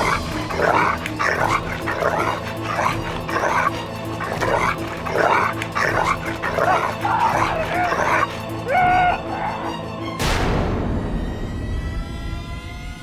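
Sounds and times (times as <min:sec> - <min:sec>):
dog barking: 0:00.0 - 0:08.4
tense background music: 0:00.0 - 0:13.0.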